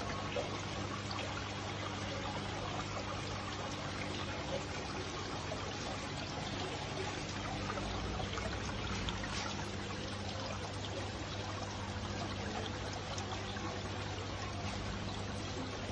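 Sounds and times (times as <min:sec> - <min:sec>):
low steady hum: 0:00.0 - 0:15.9
water pouring and trickling: 0:00.0 - 0:15.9.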